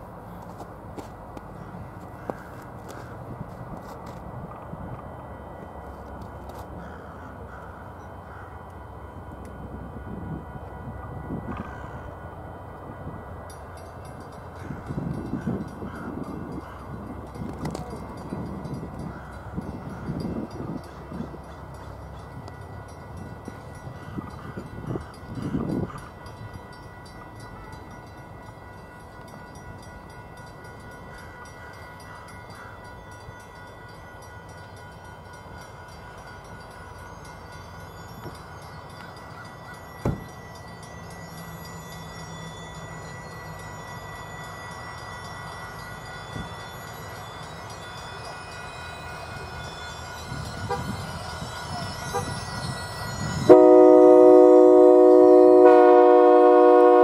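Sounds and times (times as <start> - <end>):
passenger train rumbling past: 0.0 - 57.0
train air horn chord: 53.4 - 57.0.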